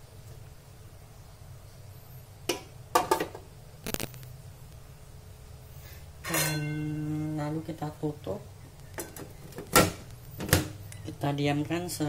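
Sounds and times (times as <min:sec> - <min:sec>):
metal bowl clinking on pot: 0:06.2 - 0:07.0.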